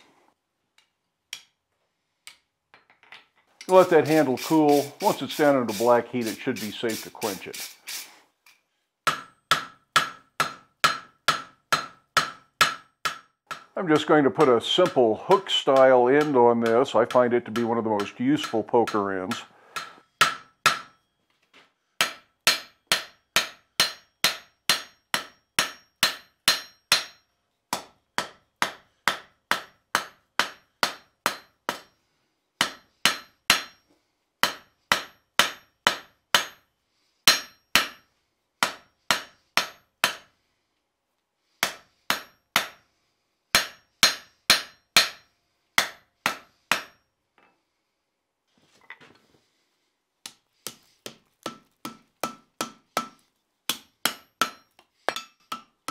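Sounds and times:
hammer striking steel on anvil: 0:09.0 - 0:21.1, 0:22.0 - 0:32.0, 0:32.6 - 0:40.3, 0:41.6 - 0:42.8, 0:43.5 - 0:47.0, 0:50.3 - 0:55.9.

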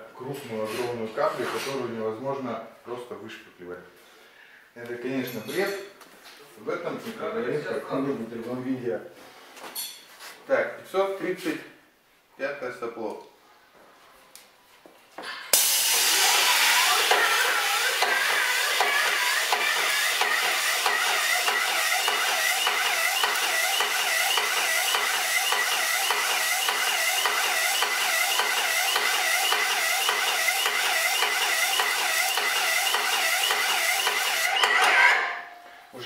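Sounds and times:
putty sprayer hissing: 0:15.6 - 0:34.6.

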